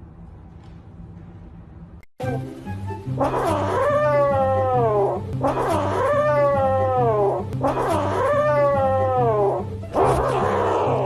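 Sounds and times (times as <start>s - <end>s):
background music with bass line: 2.2s - 11.0s
cat yowling: 3.2s - 10.9s.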